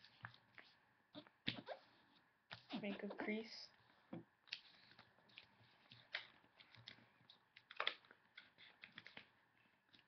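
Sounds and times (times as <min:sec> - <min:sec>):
paper rustling and crinkling: 0:04.6 - 0:10.0.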